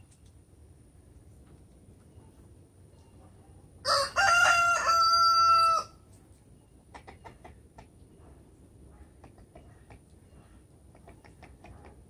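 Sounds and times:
rooster crowing: 3.8s - 6.0s.

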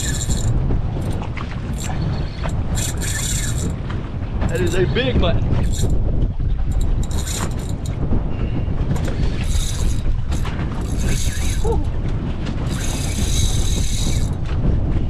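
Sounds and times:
fishing reel whirring: 0.0s - 3.8s, 4.5s - 4.8s, 5.6s - 6.0s, 6.7s - 8.0s, 8.9s - 11.9s, 12.6s - 14.5s
wind on microphone: 0.0s - 15.0s.

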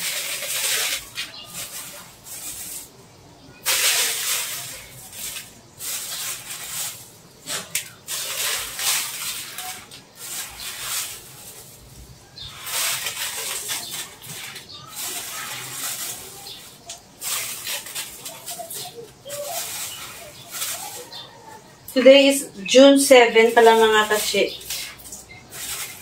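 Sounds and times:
plastic bag crinkling: 0.0s - 26.0s.

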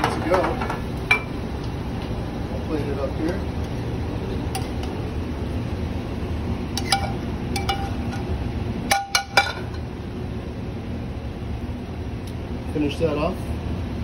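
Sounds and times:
ventilation hum: 0.0s - 14.0s
metal tongs clinking on pan: 6.8s - 8.2s
pan clanging on stove: 6.8s - 8.2s, 8.9s - 9.8s.

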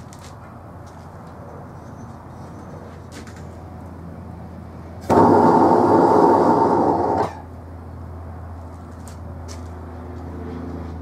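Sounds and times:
gas rushing from burner: 5.0s - 7.5s.

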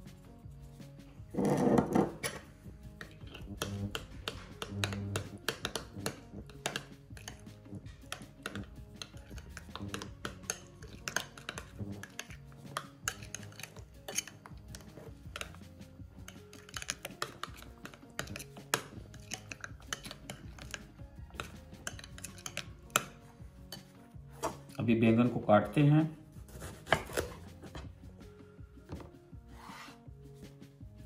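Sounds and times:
soft background music: 0.0s - 31.0s
metal spoon scraping ceramic bowl: 1.3s - 24.7s, 26.6s - 27.9s.

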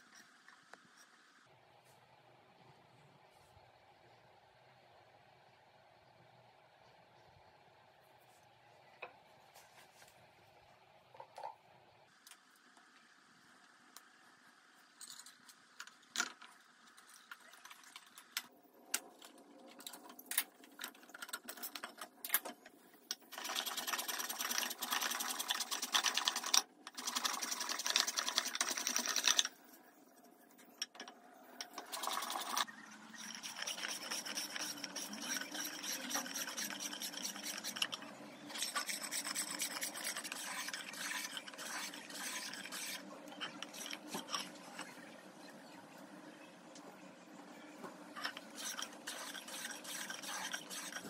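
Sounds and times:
wood rasp scraping wood: 33.2s - 44.3s, 48.3s - 51.0s.

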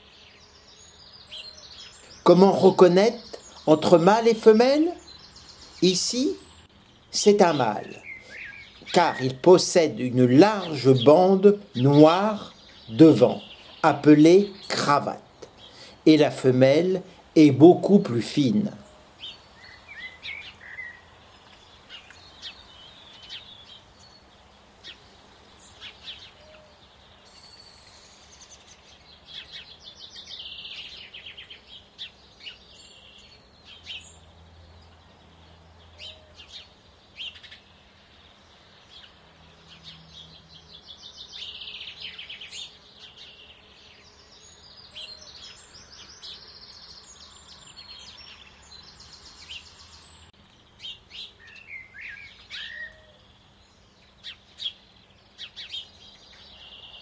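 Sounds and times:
fast trilling birdsong: 0.0s - 57.0s
songbirds singing: 0.0s - 57.0s
short bird chirps: 8.0s - 9.0s.

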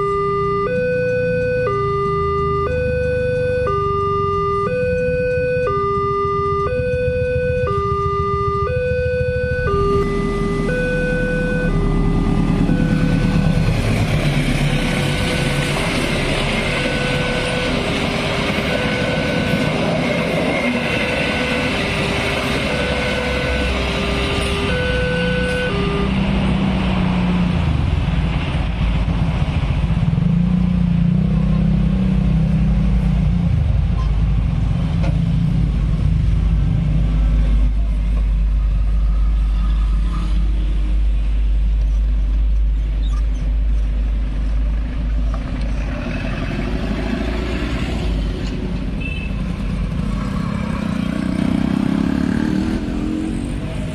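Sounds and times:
railway crossing alarm tones: 0.0s - 28.0s, 46.3s - 53.9s
road traffic rumble: 0.0s - 53.9s
train cars passing: 9.1s - 31.3s, 32.7s - 53.9s
motorcycle accelerating close by: 49.6s - 53.9s.

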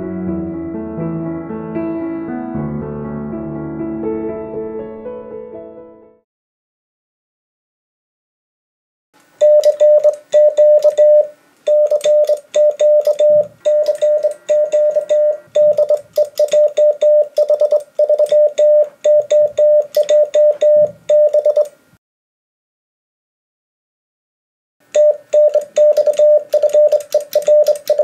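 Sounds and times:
morse code tone: 9.4s - 21.7s, 24.9s - 28.0s
morse key clicking: 11.7s - 21.7s, 25.0s - 28.0s.

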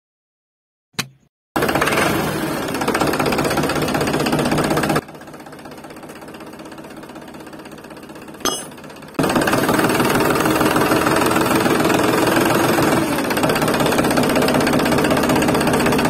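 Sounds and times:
toy tractor engine buzz: 1.6s - 8.3s, 9.2s - 16.0s.

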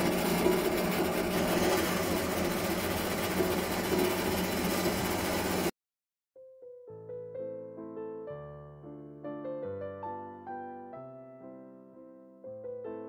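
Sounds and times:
bandsaw cutting metal: 0.0s - 5.7s
soft piano music: 6.4s - 13.0s.

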